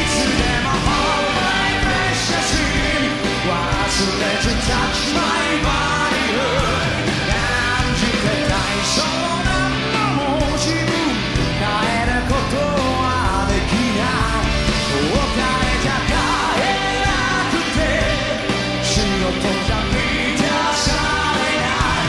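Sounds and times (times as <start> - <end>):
electric guitar: 0.0 - 22.0
man singing: 0.0 - 22.0
rock band playing: 0.0 - 22.0.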